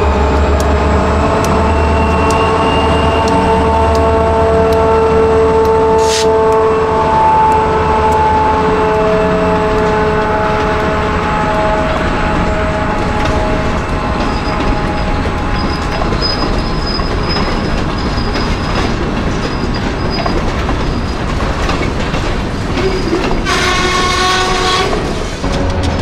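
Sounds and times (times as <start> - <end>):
train horn tone: 0.0 - 16.7, 23.4 - 26.0
train wheels rumbling on rails: 0.0 - 26.0.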